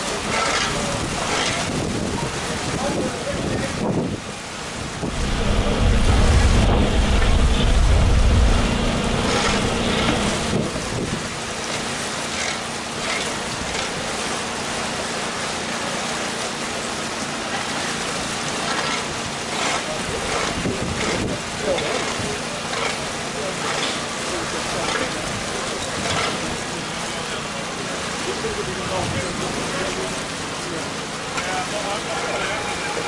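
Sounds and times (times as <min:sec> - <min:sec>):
water rushing into lock chamber: 0:00.0 - 0:33.0
low rumble: 0:04.9 - 0:11.2.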